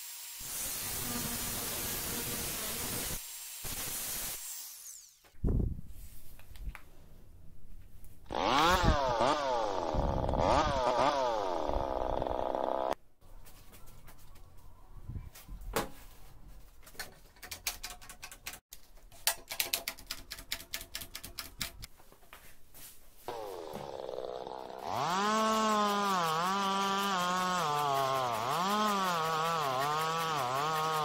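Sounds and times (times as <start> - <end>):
saw motor revving: 0.0 - 5.2, 8.3 - 13.0, 23.3 - 31.0.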